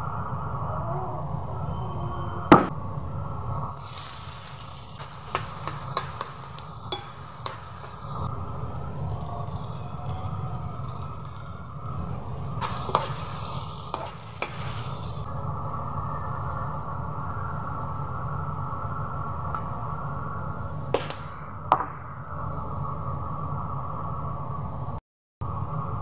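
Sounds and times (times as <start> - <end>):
vegetables sizzling in oil: 3.7 - 15.5
metal spoon scraping pan: 5.0 - 8.3, 12.6 - 15.3.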